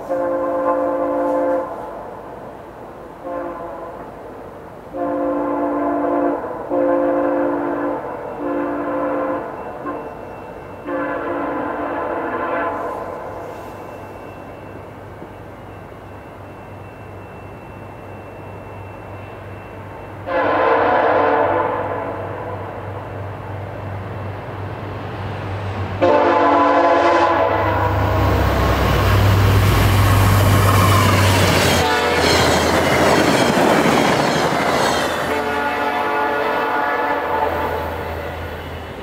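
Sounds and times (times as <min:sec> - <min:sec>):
train horn blasts: 0:00.0 - 0:02.0, 0:03.2 - 0:04.2, 0:04.9 - 0:10.2, 0:10.8 - 0:14.0, 0:20.1 - 0:22.8, 0:26.0 - 0:28.4, 0:29.4 - 0:39.0
train passing with heavy rumble: 0:00.0 - 0:39.0
coaches rushing and rail clatter: 0:22.4 - 0:39.0.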